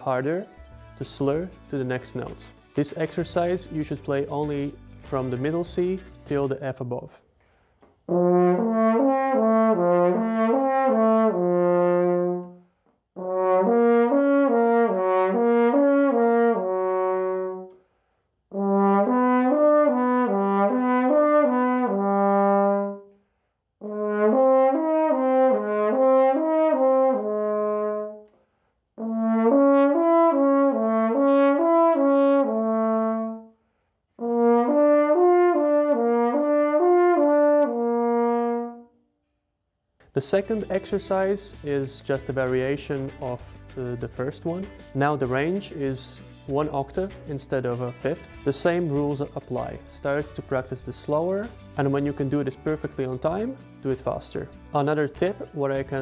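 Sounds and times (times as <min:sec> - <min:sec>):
french horn playing slurred notes: 0:08.1 - 0:12.6, 0:13.2 - 0:17.8, 0:18.5 - 0:23.1, 0:23.8 - 0:28.3, 0:29.0 - 0:33.6, 0:34.2 - 0:39.0.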